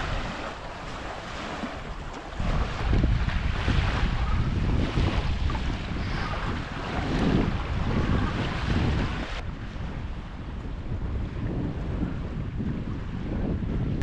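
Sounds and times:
small waves washing onto beach: 0.0 - 13.2
wind buffeting microphone: 0.0 - 14.0.

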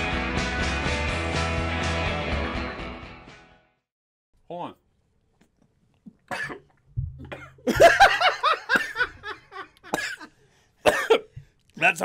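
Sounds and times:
man coughing and choking: 6.3 - 11.4
laughter: 7.6 - 10.0.

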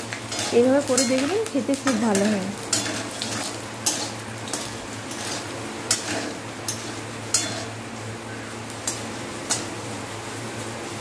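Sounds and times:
garlic sizzling in hot oil: 0.0 - 11.0
metal spatula scraping pan: 0.3 - 1.3, 1.9 - 7.8.

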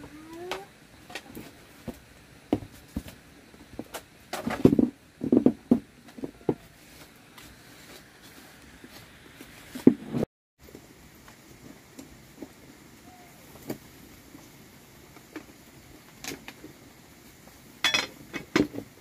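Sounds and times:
objects knocking and clattering: 3.7 - 6.6, 17.8 - 19.0.

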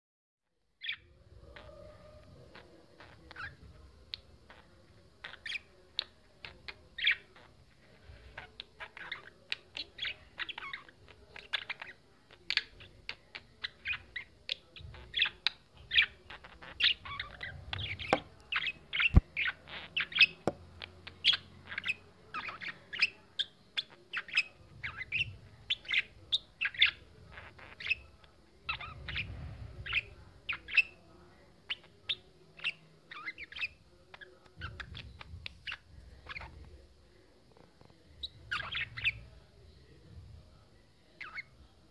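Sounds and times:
budgerigars chirping: 15.0 - 28.1, 38.2 - 39.3.

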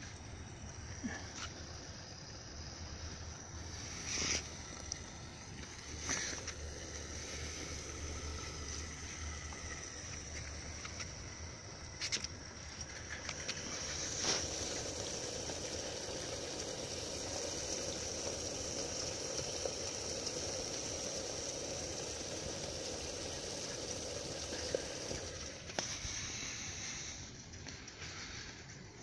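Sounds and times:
camp stove rushing hiss: 0.0 - 29.0.

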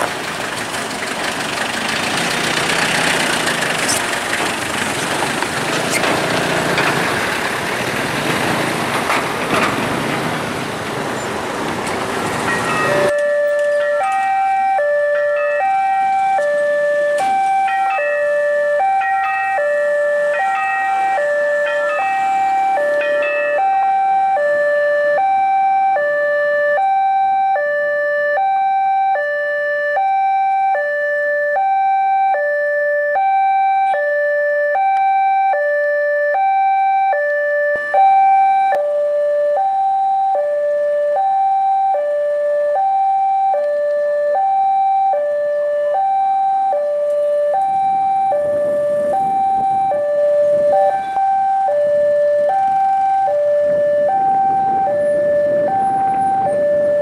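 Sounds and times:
diesel train rumble: 0.0 - 25.4, 46.8 - 57.0
level-crossing two-tone alarm: 12.4 - 57.0.

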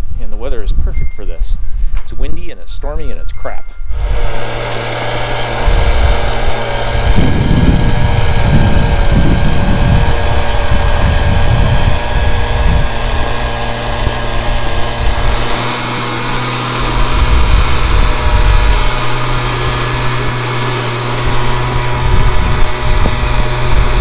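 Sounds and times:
gas leaf blower running: 3.9 - 24.0
wind rumble on microphone: 5.6 - 15.5, 16.8 - 20.2, 21.2 - 24.0.

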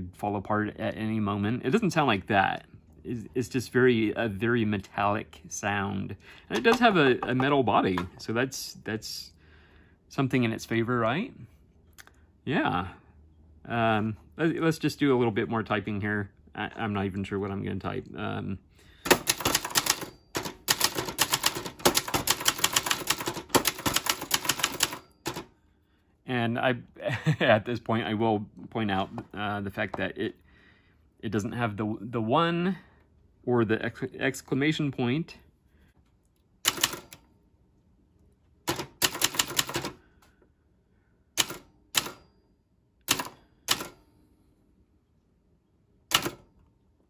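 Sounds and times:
typewriter keystrokes clattering: 19.1 - 25.5, 36.7 - 37.2, 38.7 - 40.0, 41.4 - 42.2, 43.1 - 44.0, 46.1 - 46.4.

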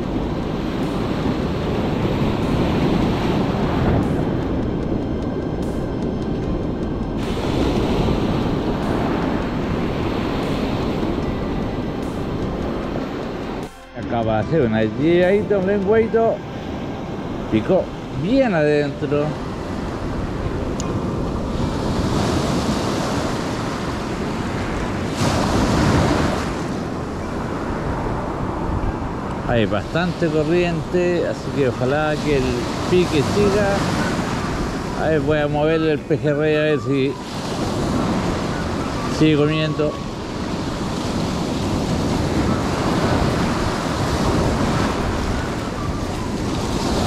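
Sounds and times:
ocean surf washing ashore: 0.0 - 47.0
wind on microphone: 0.0 - 47.0
wave breaking: 7.1 - 13.8, 17.2 - 47.0.

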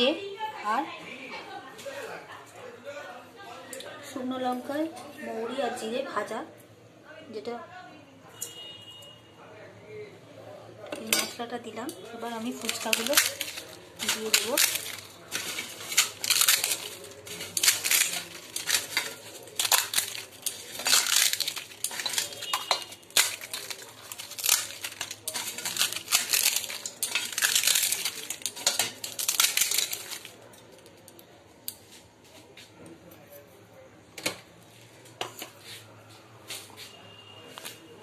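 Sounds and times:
crisp shells crunching: 12.0 - 31.2
clinks against steel bowl: 12.7 - 29.0.

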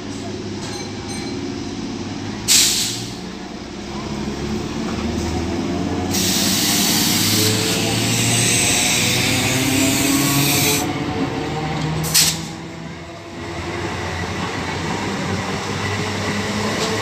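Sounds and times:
low electric train hum: 0.0 - 17.0
train coaches rushing past: 0.0 - 17.0
train air hiss burst: 2.5 - 3.2, 6.1 - 10.9, 12.1 - 12.6.

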